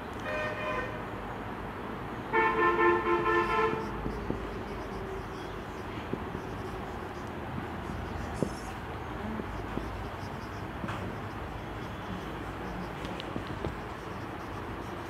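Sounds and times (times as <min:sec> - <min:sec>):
vehicle horn honking: 0:02.3 - 0:04.2.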